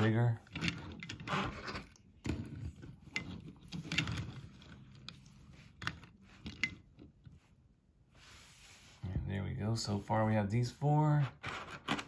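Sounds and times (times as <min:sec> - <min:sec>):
toy cars scraping on a table: 0:00.4 - 0:06.8.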